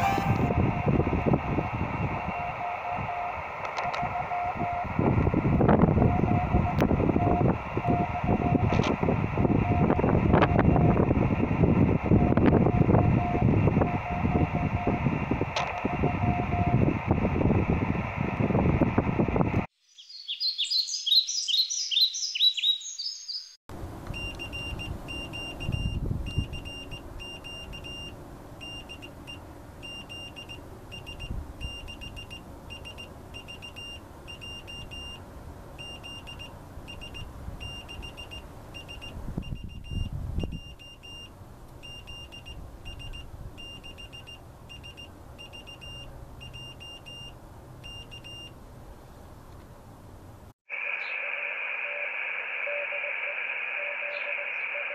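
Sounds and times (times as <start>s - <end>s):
morse code beeps: 0.0s - 0.9s, 15.9s - 16.8s, 24.2s - 35.2s, 35.8s - 48.6s
low wind rumble: 0.0s - 19.7s, 23.8s - 28.6s, 36.6s - 43.8s
high chirping: 19.9s - 23.6s.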